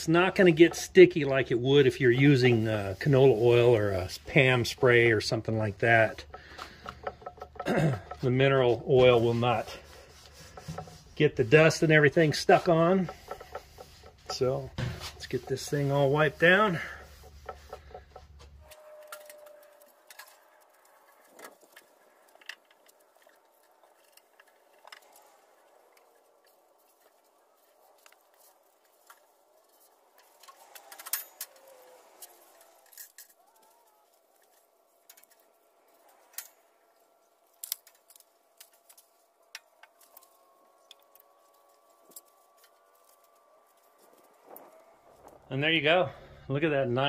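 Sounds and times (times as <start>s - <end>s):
rag wiping metal with taps: 0.0s - 19.5s.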